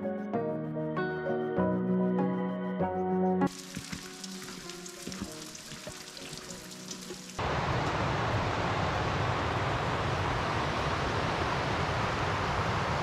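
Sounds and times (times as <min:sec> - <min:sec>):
quiet background music: 0:00.0 - 0:07.4
mountain stream: 0:03.5 - 0:13.0.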